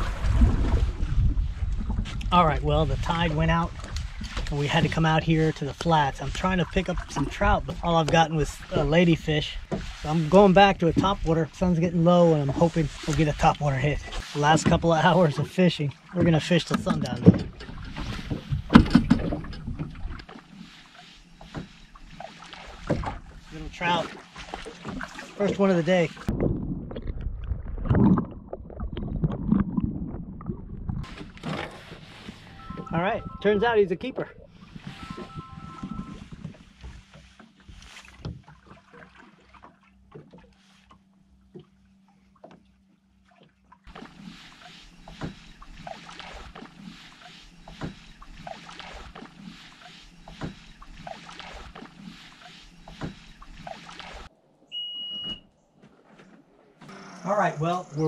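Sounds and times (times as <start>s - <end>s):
low water surge: 0.0s - 16.3s, 17.6s - 33.3s
muffled underwater water sloshing: 0.0s - 56.8s
low steady hum: 0.0s - 58.0s
high electronic beep: 32.5s - 33.6s, 34.8s - 36.2s, 54.7s - 55.4s.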